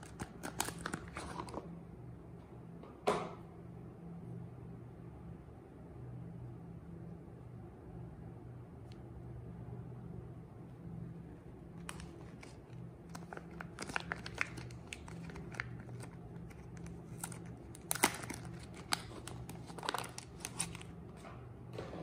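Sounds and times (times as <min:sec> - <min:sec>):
soap wrapper crinkling and tearing: 0:00.0 - 0:01.6, 0:11.8 - 0:21.0
steady low hum: 0:00.0 - 0:22.0.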